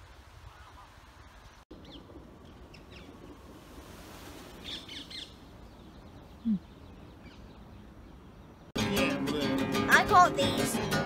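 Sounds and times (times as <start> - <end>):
background hiss: 0.0 - 11.0
birds chirping: 0.4 - 3.5, 4.4 - 9.2
harsh high bird calls: 4.6 - 8.7.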